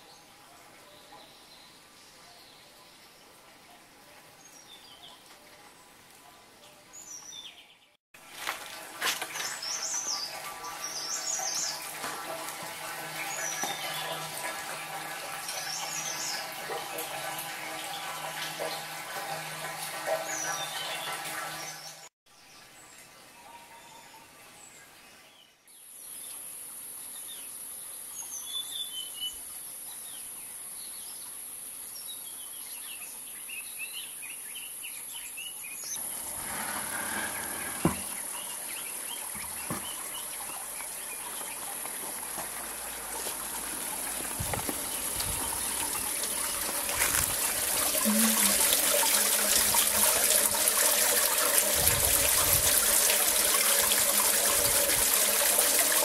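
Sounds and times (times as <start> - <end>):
water trickling onto pebbles: 8.2 - 20.0, 36.0 - 56.0
birds chirping: 35.4 - 51.2.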